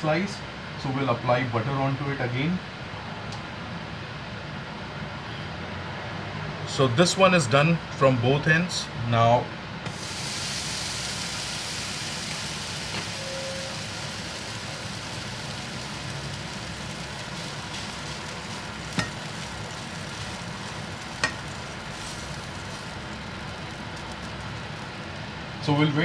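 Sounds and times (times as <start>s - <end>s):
butter sizzling in a pan: 9.9s - 25.6s.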